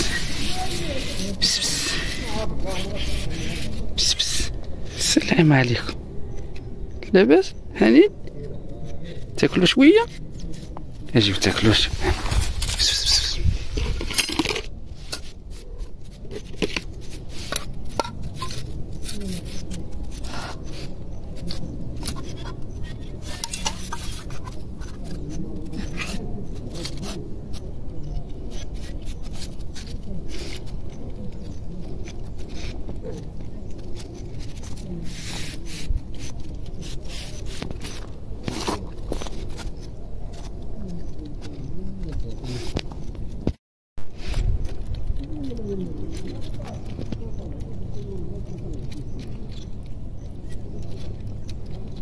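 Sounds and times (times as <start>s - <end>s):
scraping against tin can: 0.0s - 3.9s, 22.0s - 26.2s
rustling in dry grass: 0.0s - 5.0s, 10.2s - 14.1s, 14.7s - 39.9s
metal spoon scraping tin can: 22.1s - 25.0s.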